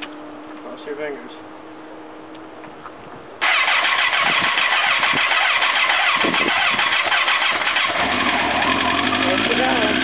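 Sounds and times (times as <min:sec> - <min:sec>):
motorcycle engine starting and running: 0:03.4 - 0:10.0.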